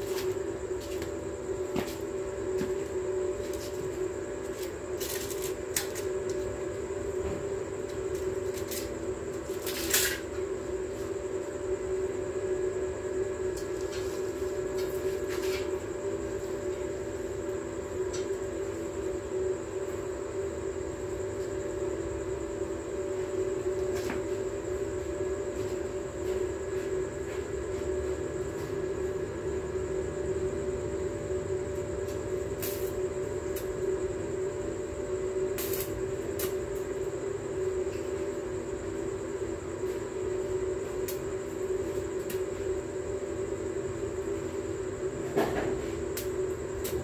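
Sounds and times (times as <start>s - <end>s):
welding arc crackling and buzzing: 4.5s - 6.5s, 7.9s - 10.3s, 32.1s - 33.8s, 35.5s - 37.0s
spatter pops: 35.6s - 36.6s.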